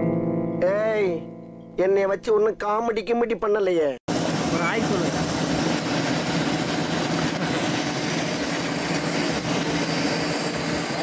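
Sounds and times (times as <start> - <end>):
steady low hum: 4.1 - 11.0.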